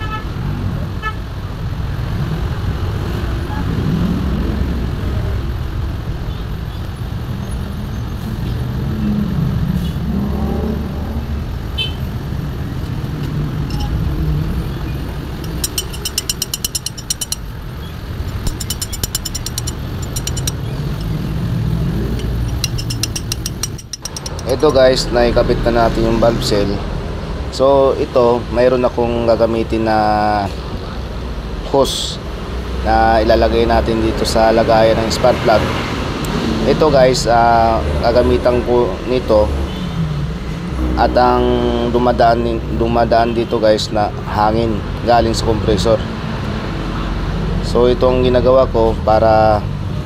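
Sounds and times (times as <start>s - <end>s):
traffic rumble: 0.5s - 43.3s
ratchet wrench clicking: 13.7s - 14.0s, 15.4s - 17.6s, 18.3s - 21.2s, 22.2s - 24.9s.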